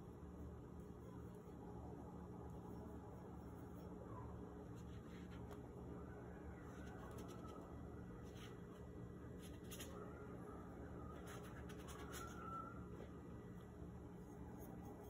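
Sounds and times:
steady low hum: 0.0s - 15.0s
paintbrush scratching on paper: 11.0s - 13.2s, 14.2s - 15.0s.

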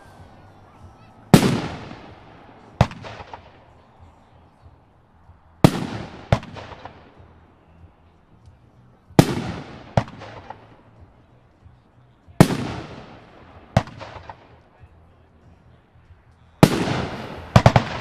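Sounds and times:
firework crackle: 1.3s - 3.6s.

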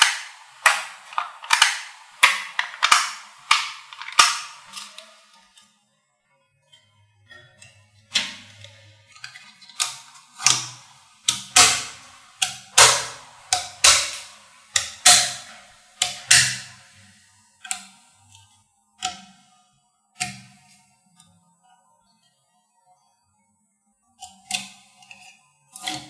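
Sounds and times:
magnet balls clacking: 0.0s - 5.4s.

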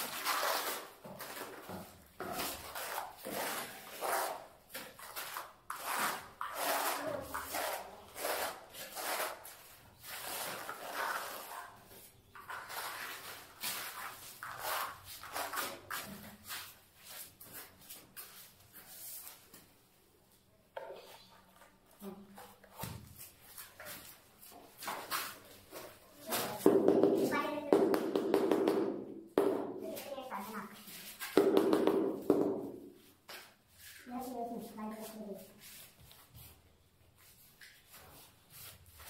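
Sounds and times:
trowel scraping adhesive on concrete: 0.0s - 19.2s.

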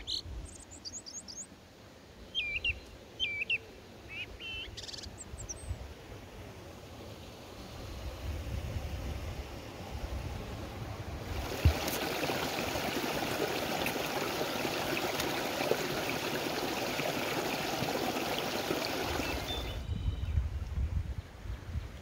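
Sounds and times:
creek water rushing over rocks: 11.2s - 19.8s.

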